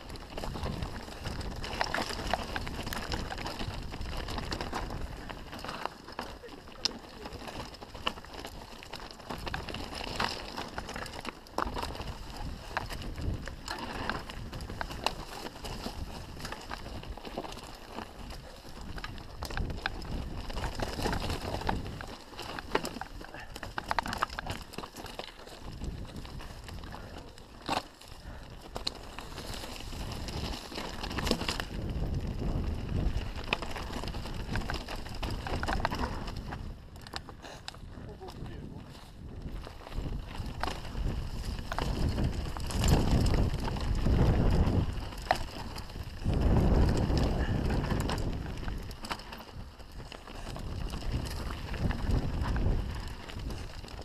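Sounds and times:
tyres crunching over stones: 0.0 - 54.0
wind rumble on microphone: 0.0 - 54.0
bike clicking and knocking: 0.1 - 37.9.

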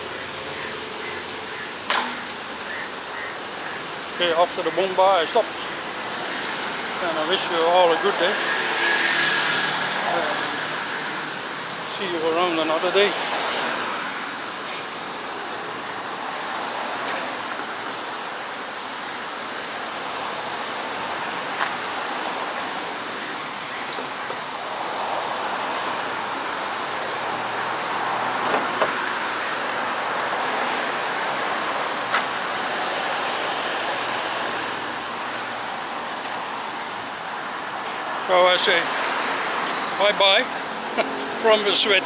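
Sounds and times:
street traffic hiss: 0.0 - 42.0.

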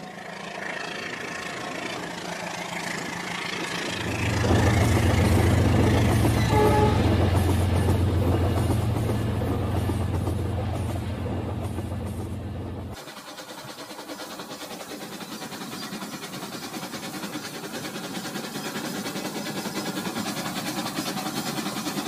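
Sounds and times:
toy train wheels rattling on track: 12.9 - 22.0.

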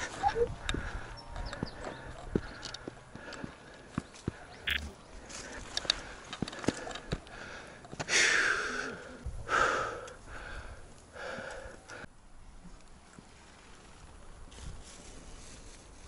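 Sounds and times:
person breathing hard: 5.4 - 12.1.

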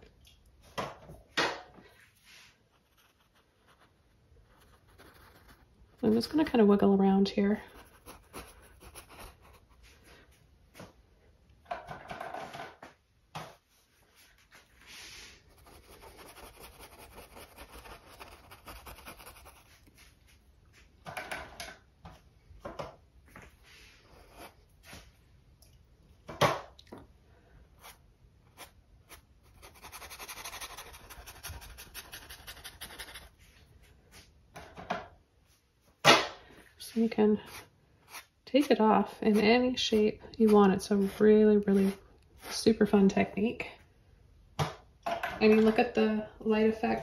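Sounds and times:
brush scrubbing on canvas: 13.8 - 20.4, 27.8 - 33.6.

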